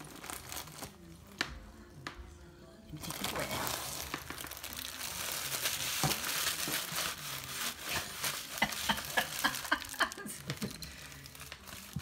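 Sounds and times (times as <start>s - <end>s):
plastic bag crinkling: 0.0s - 1.4s, 2.9s - 12.0s.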